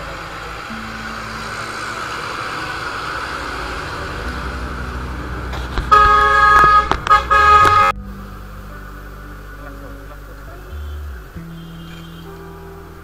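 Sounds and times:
motorcycle engine: 0:00.0 - 0:13.0
wind noise: 0:02.7 - 0:08.0
loud vehicle horn: 0:05.5 - 0:08.0, 0:09.6 - 0:12.8.

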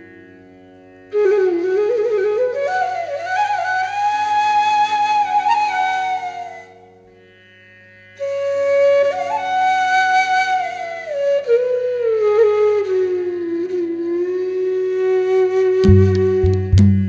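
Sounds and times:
slow solo melody: 0:12.9 - 0:17.0.

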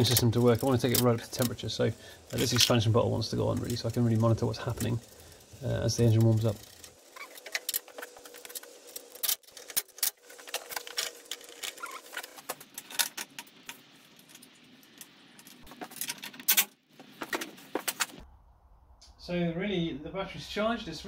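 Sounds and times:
hand tools being handled: 0:00.0 - 0:18.2.

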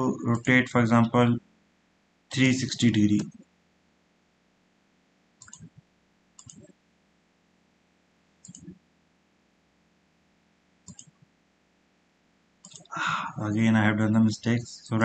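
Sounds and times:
computer mouse clicking: 0:03.1 - 0:03.4, 0:05.4 - 0:05.8, 0:06.4 - 0:06.7, 0:08.4 - 0:08.8, 0:10.8 - 0:11.2, 0:12.6 - 0:12.9.

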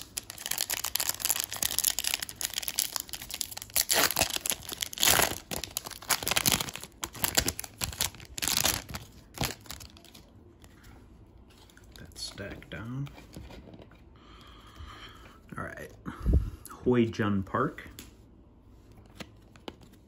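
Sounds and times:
foil wrapper crinkling and tearing: 0:00.0 - 0:10.3.

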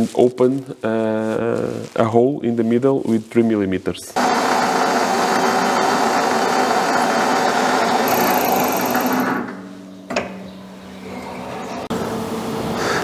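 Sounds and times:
metal lathe running: 0:04.2 - 0:09.4.

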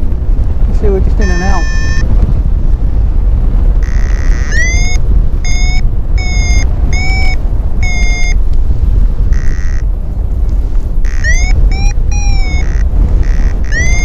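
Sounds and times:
wind rushing on microphone: 0:00.0 - 0:14.0
steady held tone: 0:01.0 - 0:02.1, 0:03.8 - 0:08.5, 0:09.3 - 0:09.9, 0:11.0 - 0:14.0
variometer beeps: 0:01.1 - 0:02.1, 0:03.8 - 0:08.4, 0:09.3 - 0:09.8, 0:11.0 - 0:14.0.

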